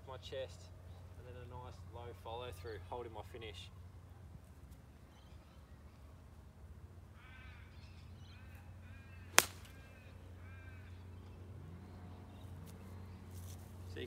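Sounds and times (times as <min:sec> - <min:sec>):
bird calling: 0:07.1 - 0:13.6
golf club striking ball: 0:09.3 - 0:09.8.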